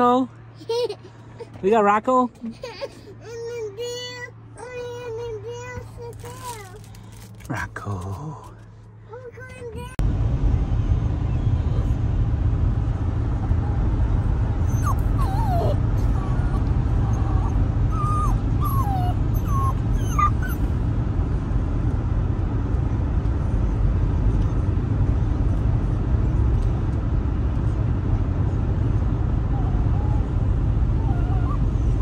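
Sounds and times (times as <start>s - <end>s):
car cabin rumble: 1.4s - 32.0s
puppy whining: 14.6s - 20.8s, 29.4s - 32.0s.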